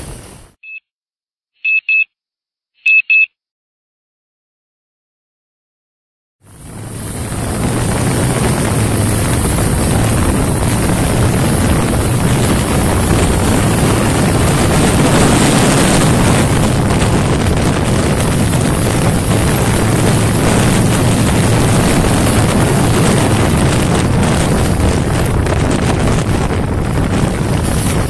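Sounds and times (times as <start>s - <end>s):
motorcycle engine at high revs: 6.4s - 28.0s
wind rush on microphone: 6.4s - 28.0s.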